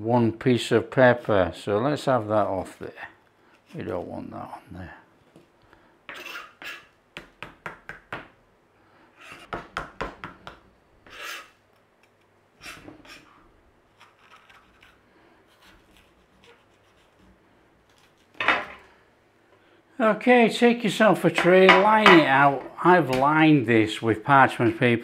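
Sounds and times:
knife scraping on cutting board: 0:06.1 - 0:07.0, 0:11.0 - 0:11.6, 0:12.6 - 0:17.3.

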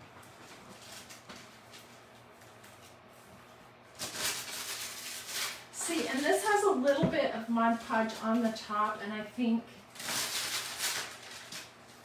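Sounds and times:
paper rustle: 0:00.3 - 0:03.0, 0:04.0 - 0:06.4, 0:09.9 - 0:12.0.

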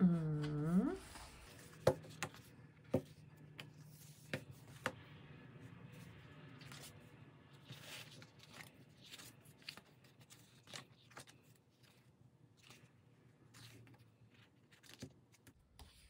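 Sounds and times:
paper rustling and crinkling: 0:05.9 - 0:16.0.

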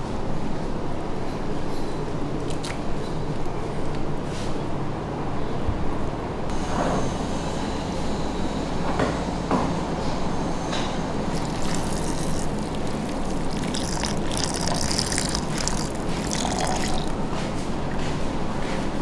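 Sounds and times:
liquid pouring into plastic jug: 0:02.4 - 0:02.9, 0:11.3 - 0:17.2.

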